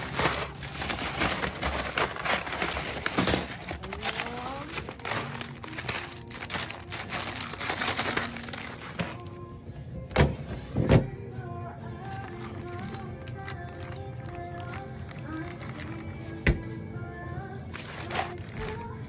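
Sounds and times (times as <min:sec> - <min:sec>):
plastic cups clicking and crinkling: 0:00.0 - 0:09.3, 0:12.0 - 0:16.6, 0:17.7 - 0:19.0.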